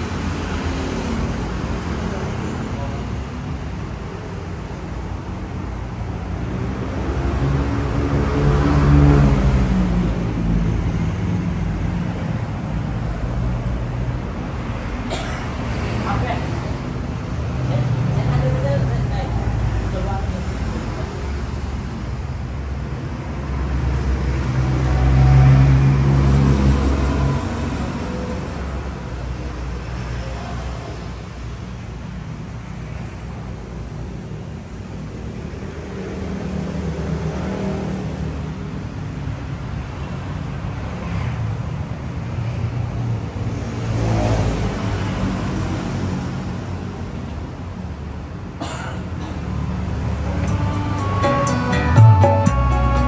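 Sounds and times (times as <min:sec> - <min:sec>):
bass-heavy music through speakers: 0:50.3 - 0:53.0.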